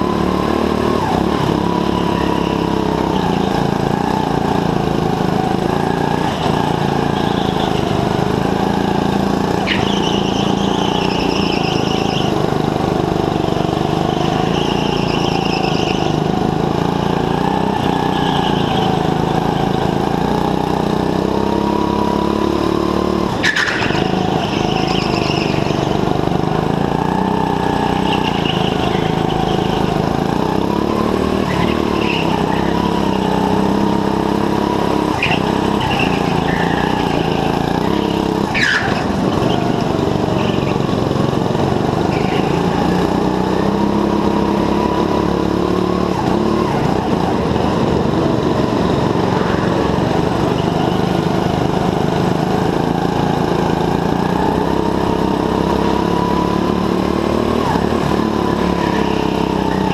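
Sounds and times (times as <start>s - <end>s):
go-kart engine revving: 0.0s - 59.9s
tyre squeals: 0.4s - 12.7s, 13.4s - 20.0s, 23.3s - 41.0s, 41.9s - 45.2s, 52.6s - 59.9s.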